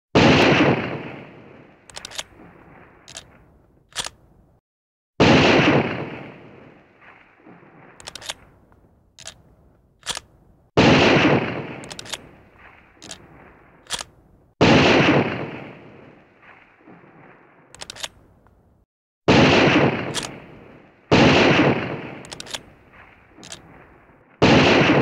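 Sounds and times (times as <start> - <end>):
loud gunshots with echo: 0.2 - 3.0, 5.2 - 7.2, 10.8 - 16.2, 19.3 - 25.0
short sharp clicks: 22.2 - 22.6.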